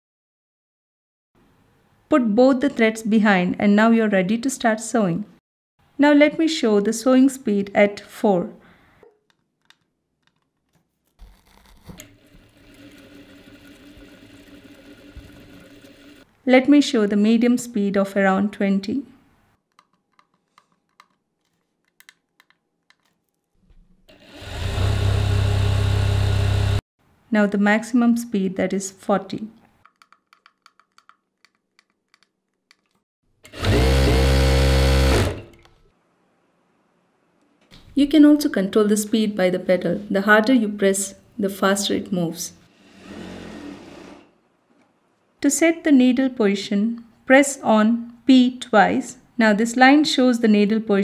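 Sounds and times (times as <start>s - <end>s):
sewing machine humming: 12.0s - 16.3s, 24.1s - 26.8s, 33.5s - 35.6s.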